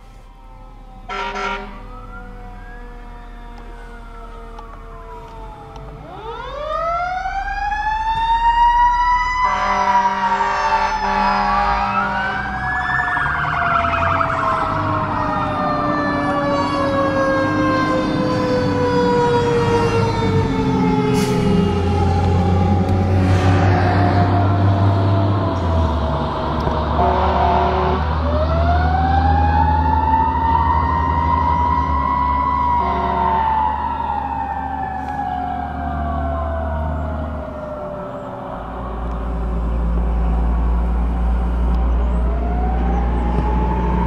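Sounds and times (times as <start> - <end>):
second siren tone wailing: 0.0 - 44.0
fire engine siren winding: 0.1 - 44.0
horn blasting: 1.1 - 2.0, 9.4 - 12.7, 20.9 - 28.6, 32.6 - 33.7.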